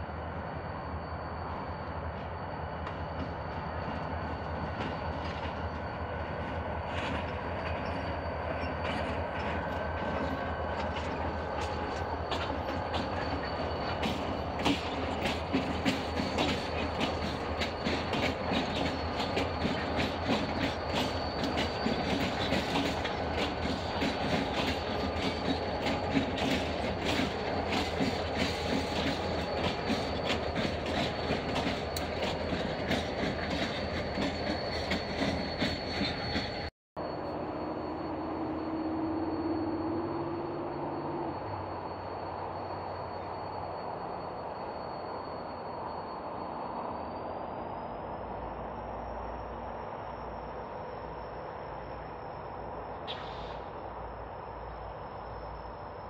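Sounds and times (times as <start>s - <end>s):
faint high whine: 0.0s - 36.2s, 37.0s - 56.0s
diesel locomotives rumbling: 0.0s - 56.0s
wheels clicking over rail joints: 6.4s - 36.7s.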